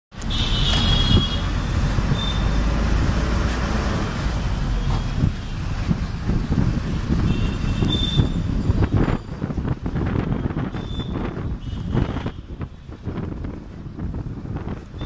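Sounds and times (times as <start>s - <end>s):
road noise: 0.1s - 15.0s
bus engine rumble: 0.2s - 15.0s
traffic through open window: 0.2s - 15.0s.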